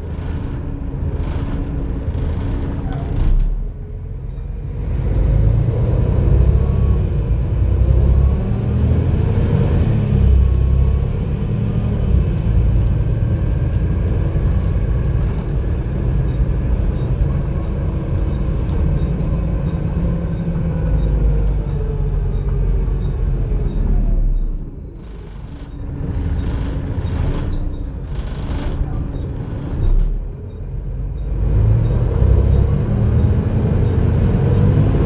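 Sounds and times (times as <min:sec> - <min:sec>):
bus diesel engine rumble: 0:00.0 - 0:35.0
brake squeal: 0:15.8 - 0:35.0.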